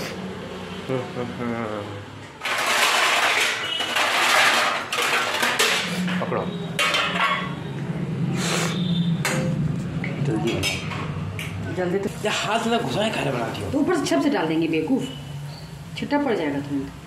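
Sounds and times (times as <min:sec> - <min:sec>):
metal dishes clattering: 0:02.4 - 0:07.6, 0:10.4 - 0:11.6.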